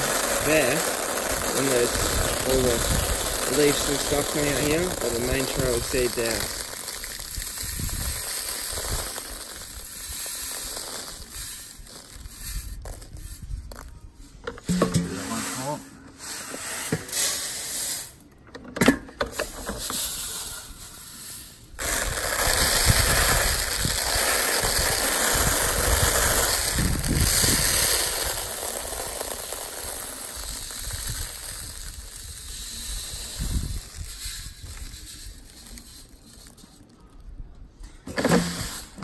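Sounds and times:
wind rushing over microphone: 2.0 - 3.2, 7.6 - 8.2, 26.7 - 27.8, 33.3 - 34.8.

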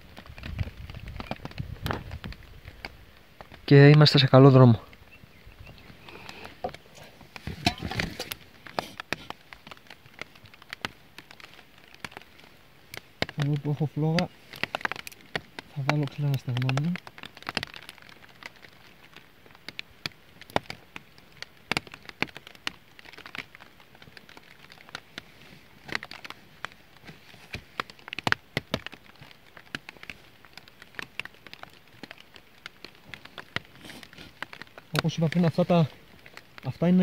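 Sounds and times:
faint steady hiss of rain: 0.0 - 37.0
twig fire crackling: 0.0 - 37.0.

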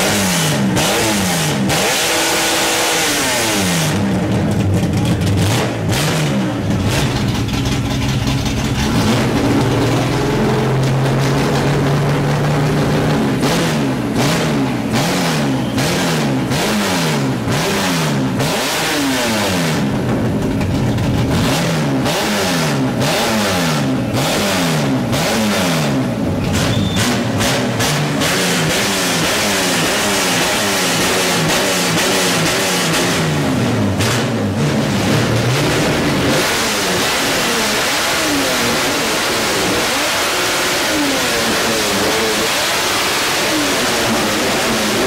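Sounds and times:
car engines revving: 0.0 - 45.0.

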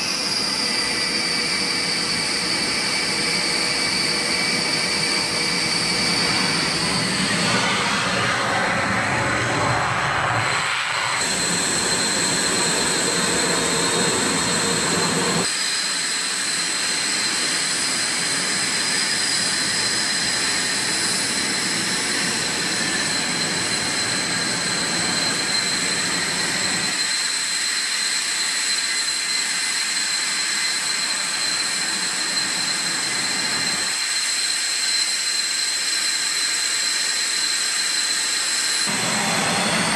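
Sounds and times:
jet engine rushing noise: 0.0 - 35.6, 37.9 - 39.9
jet engine high whine: 0.0 - 39.9
low rumble: 7.2 - 11.2.

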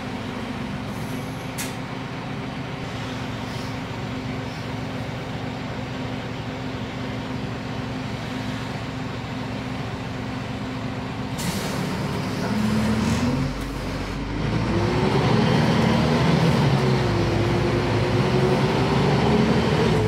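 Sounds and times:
bus diesel engine idling: 0.0 - 20.0
compressed air hiss: 11.4 - 12.0.

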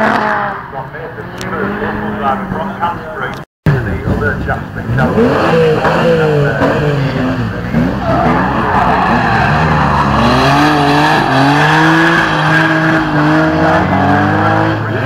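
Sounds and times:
car engine revving: 0.0 - 15.0
tyres screeching: 4.6 - 15.0.

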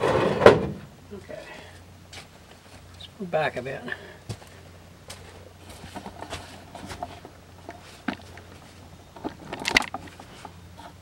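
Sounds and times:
faint low hum: 0.0 - 11.0
camera knocks and rustles: 6.0 - 10.4.

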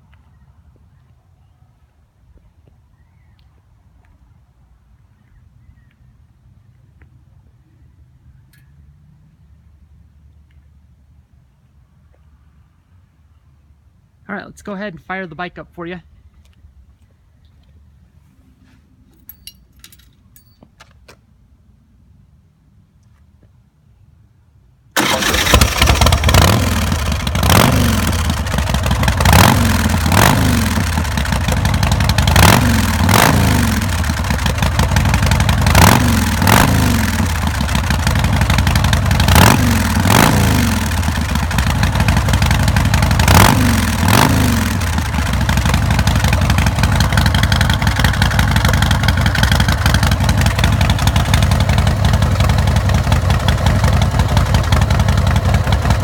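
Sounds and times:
motorcycle engine revving and idling: 25.0 - 56.0.

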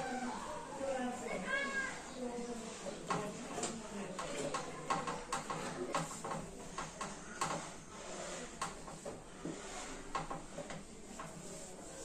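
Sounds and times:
cloth rubbing metal hood: 7.4 - 10.6.

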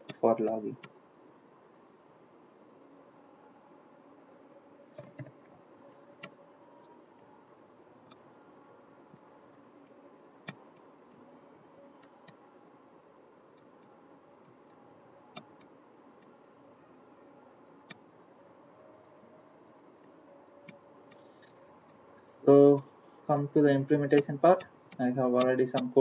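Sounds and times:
faint background hum: 0.0 - 26.0.

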